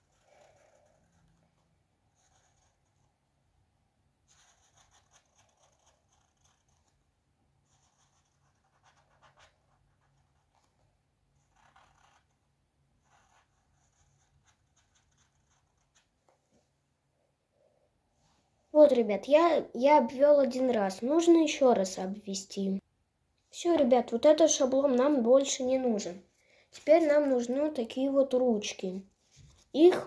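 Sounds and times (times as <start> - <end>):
marker scratching on cardboard: 0.0 - 3.1, 4.2 - 7.0, 7.6 - 10.8, 11.4 - 12.4, 13.0 - 16.2.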